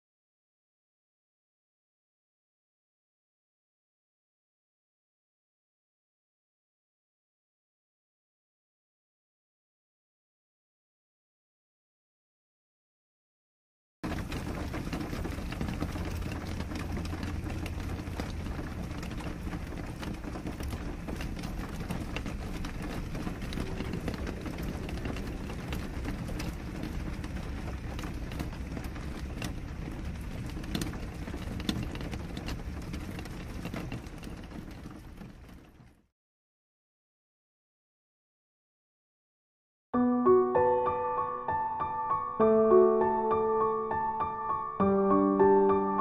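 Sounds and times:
steady rain: 14.0s - 36.0s.

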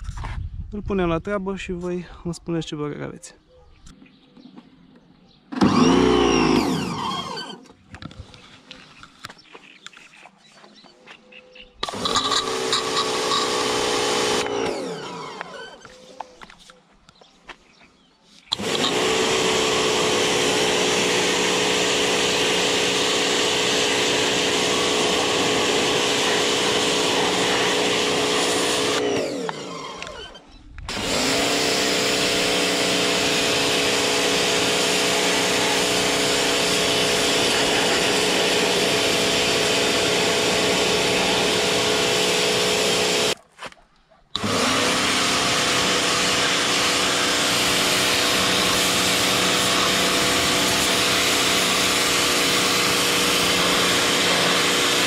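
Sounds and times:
pressure washer motor hum: 5.5s - 8.4s, 11.8s - 16.0s, 18.5s - 43.4s, 44.4s - 55.0s
high-pressure water jet hissing: 18.5s - 29.3s, 30.9s - 43.4s, 44.4s - 55.0s.

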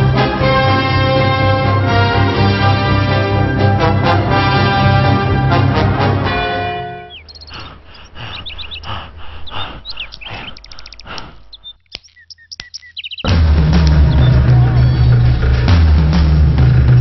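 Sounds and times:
brass music: 0.0s - 7.3s
birds chirping and trilling: 6.3s - 17.0s
men panting: 7.1s - 11.8s, 13.3s - 17.0s.

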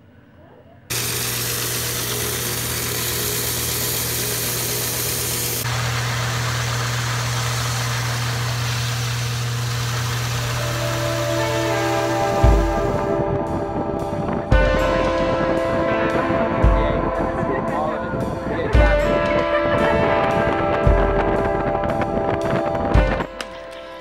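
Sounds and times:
wood sanding hiss: 0.9s - 13.2s
sanding machine motor hum: 0.9s - 13.3s
music: 10.6s - 24.0s.

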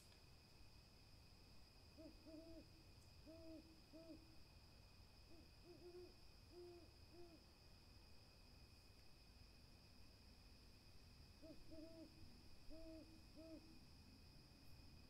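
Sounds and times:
owl hooting: 2.0s - 4.3s, 5.3s - 7.4s, 11.4s - 13.8s.

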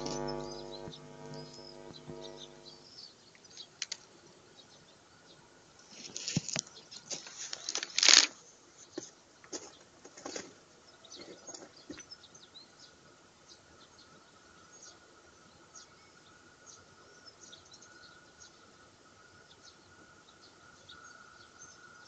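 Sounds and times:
clicks: 0.0s - 2.8s
short scratchy noises: 0.0s - 2.8s.

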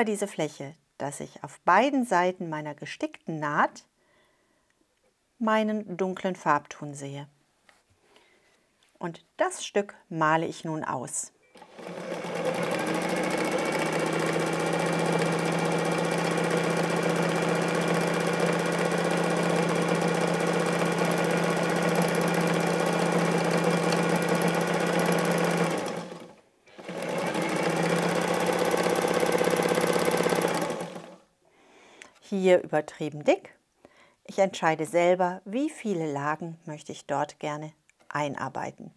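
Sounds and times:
electric sewing machine running: 11.6s - 31.2s.

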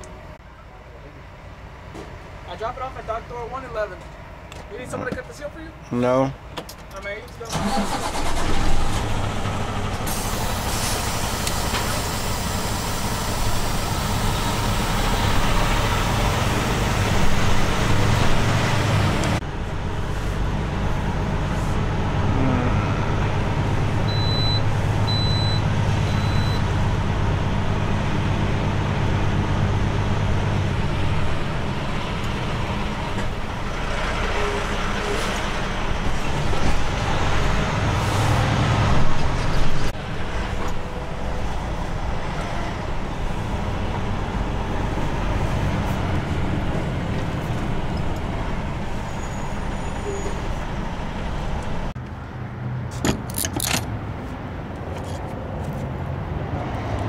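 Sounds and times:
diesel truck engine droning: 7.4s - 52.0s.

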